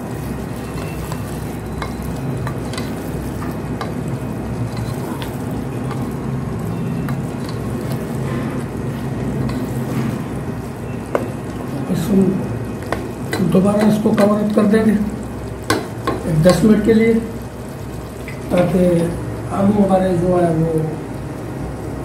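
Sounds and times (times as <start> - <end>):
vegetables sizzling in a pot: 0.0 - 22.0
spatula scraping a pot: 4.6 - 6.1, 7.0 - 10.4.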